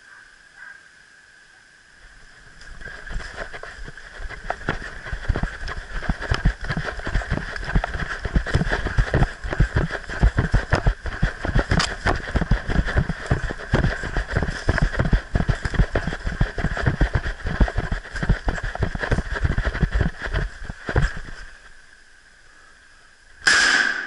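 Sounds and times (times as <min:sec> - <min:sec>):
footsteps on leaf litter: 0:02.6 - 0:21.6
gear knocking against camera: 0:02.8 - 0:21.4.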